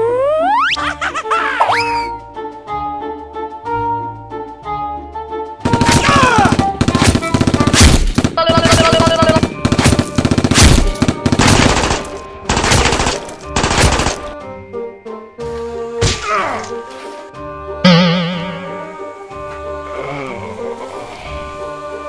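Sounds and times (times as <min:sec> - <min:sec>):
background music: 0:00.0 - 0:22.0
machine-gun fire: 0:05.7 - 0:14.4.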